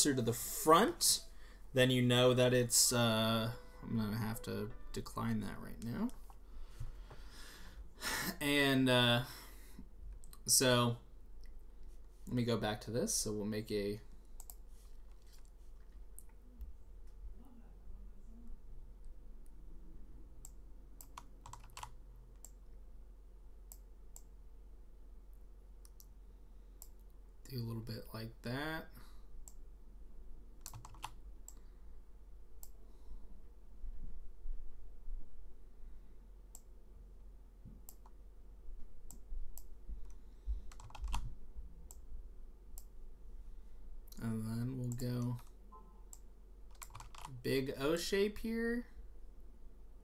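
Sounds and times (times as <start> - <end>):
low steady hum: 0.0 - 50.0
keyboard clicking: 20.4 - 22.6, 30.6 - 31.6, 40.1 - 41.3, 46.7 - 47.3.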